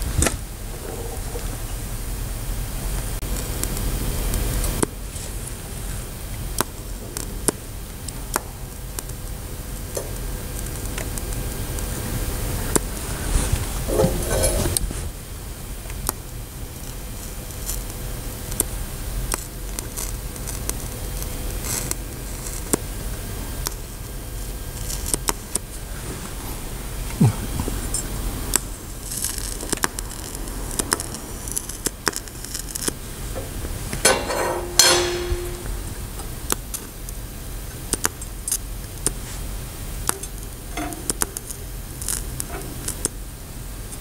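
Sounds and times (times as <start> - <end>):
welding arc hissing: 0.0 - 44.0
welding crackles: 0.0 - 44.0.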